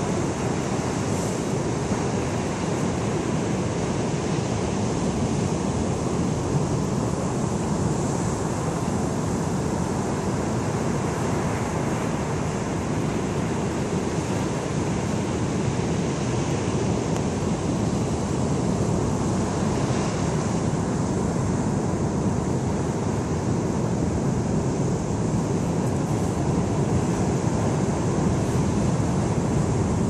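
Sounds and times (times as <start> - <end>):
wind on microphone: 0.0 - 30.0.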